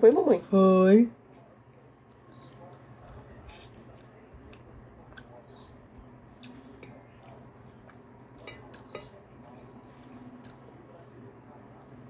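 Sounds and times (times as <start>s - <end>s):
chewing and lip smacks: 1.4s - 5.7s.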